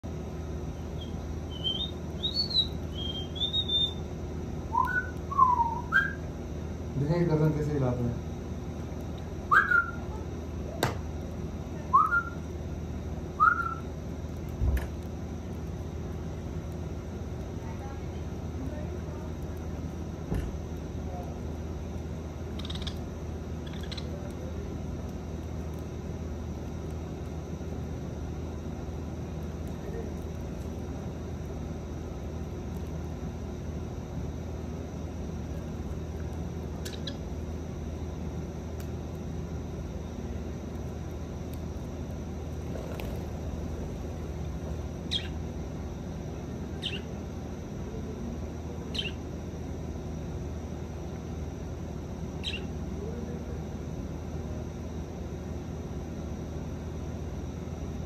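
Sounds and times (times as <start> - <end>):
low hum and hiss: 0.0 - 58.0
budgerigar chirp: 1.0 - 4.0, 9.5 - 10.0, 22.6 - 23.0, 23.6 - 24.1, 45.1 - 45.4, 46.8 - 47.1, 48.9 - 49.2, 52.4 - 52.7.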